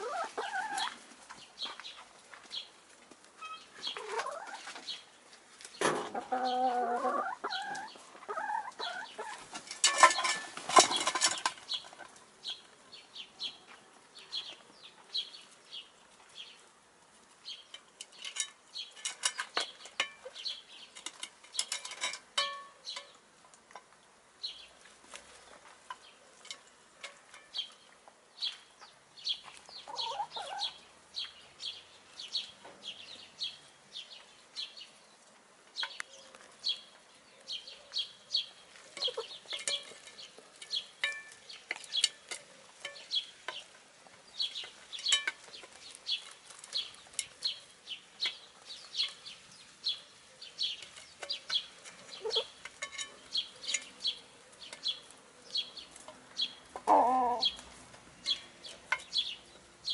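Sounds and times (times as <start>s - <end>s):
hens clucking: 0.0s - 1.4s, 3.8s - 5.0s, 5.8s - 12.7s, 28.8s - 30.8s, 38.7s - 40.1s, 51.3s - 53.9s, 56.0s - 59.2s
beaks tapping on metal pan: 58.2s - 59.4s.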